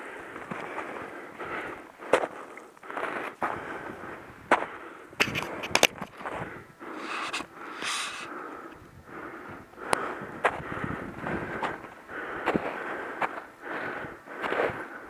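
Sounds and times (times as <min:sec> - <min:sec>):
footsteps crunching through snow: 0:07.0 - 0:08.3.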